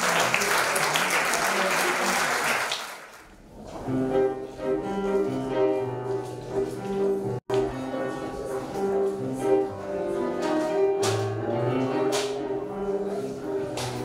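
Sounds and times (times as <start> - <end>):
audience applause: 0.0 - 3.4
jazz piano and double bass: 3.6 - 14.0.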